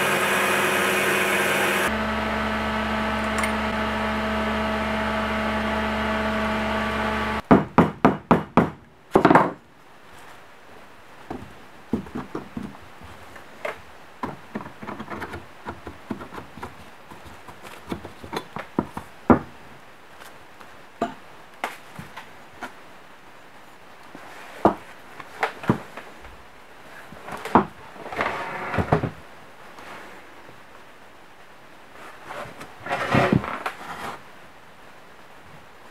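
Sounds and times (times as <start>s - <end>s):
milling machine humming: 0.0s - 7.4s.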